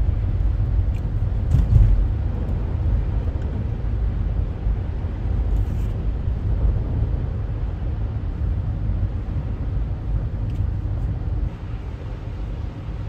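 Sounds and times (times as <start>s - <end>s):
vehicle engine and road noise: 0.0s - 13.0s.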